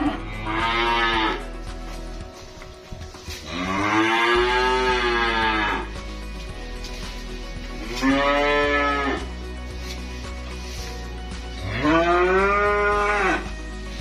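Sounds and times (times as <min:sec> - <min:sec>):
calves mooing: 0:00.0 - 0:01.5, 0:03.4 - 0:06.0, 0:07.8 - 0:09.3, 0:11.6 - 0:13.5.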